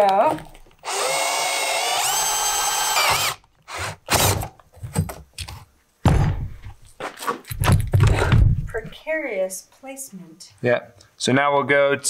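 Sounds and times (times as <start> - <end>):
cordless drill boring steel: 0.8 - 4.5.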